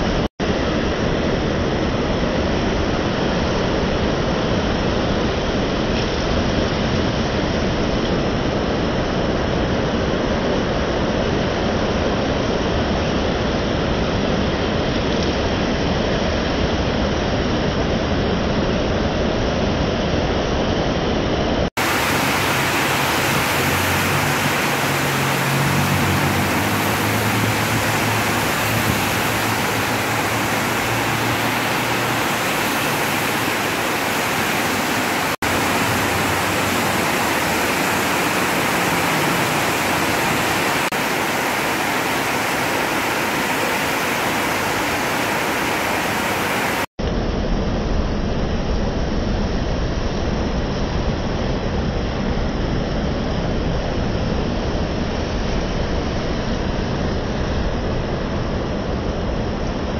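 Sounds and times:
heavy rain pouring: 21.7s - 46.9s
traffic on wet road: 21.8s - 46.9s.

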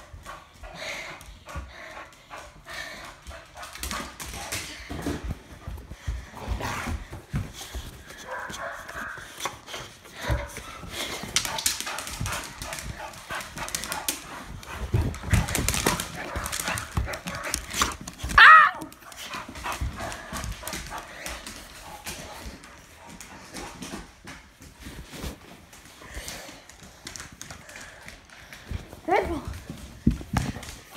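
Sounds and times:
dog paws scrabbling: 1.5s - 30.9s
dog barking loudly: 18.4s - 18.9s.

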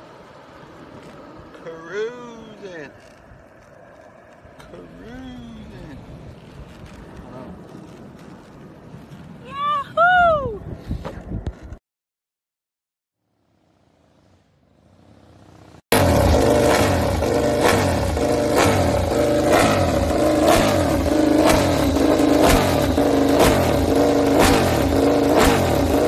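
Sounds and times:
motorcycle engine revving: 13.4s - 26.0s
sharp exhaust crack: 13.4s - 26.0s.

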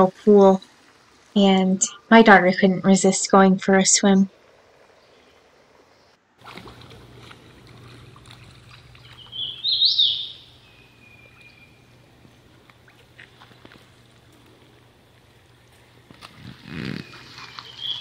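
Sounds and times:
faint low hum: 0.0s - 18.0s
bird call with rising notes: 9.0s - 12.4s, 16.7s - 18.0s.

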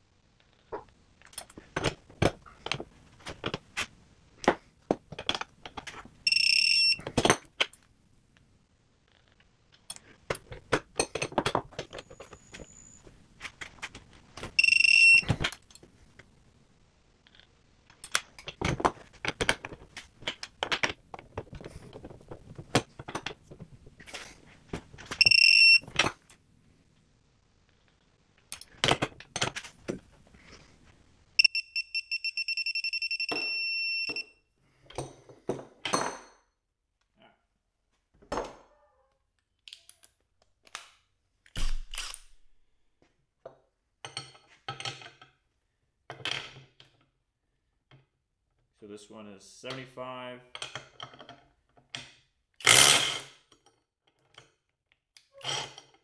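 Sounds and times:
high electronic beeps: 6.3s - 7.0s, 14.6s - 15.4s, 25.2s - 25.8s, 31.4s - 34.2s.

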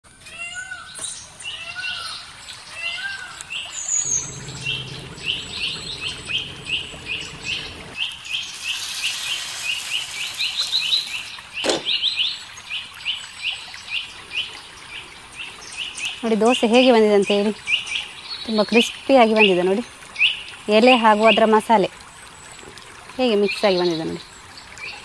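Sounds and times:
other bird calls: 0.5s - 12.0s
bird chirping: 0.9s - 12.4s.

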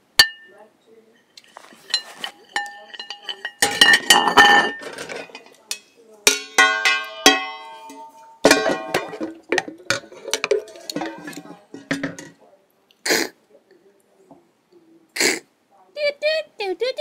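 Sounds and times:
metal cooking pots clanking: 0.0s - 0.6s, 1.3s - 12.4s.

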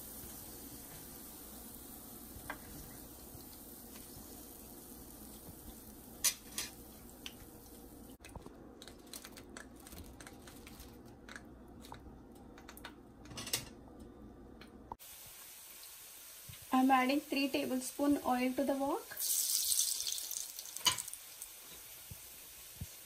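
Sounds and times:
crunchy fried food clicks and taps: 8.2s - 13.0s.

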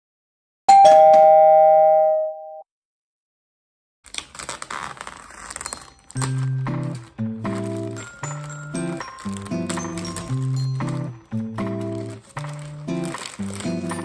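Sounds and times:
ding-dong doorbell chime: 0.7s - 2.6s
crackling and rustling: 4.1s - 14.0s
music: 5.2s - 14.0s.

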